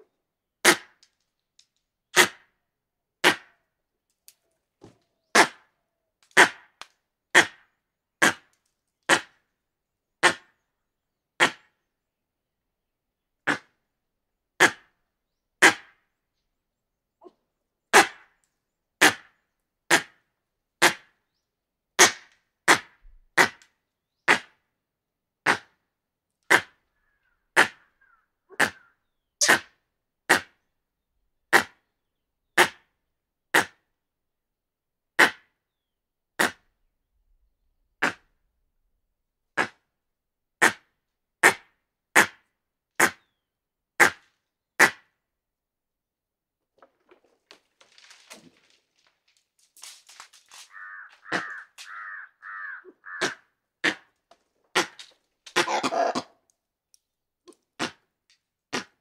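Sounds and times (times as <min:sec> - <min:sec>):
monkey alarm barks: 0:11.4 - 0:11.6, 0:27.6 - 0:29.7, 0:50.7 - 0:54.0, 0:54.7 - 0:56.4.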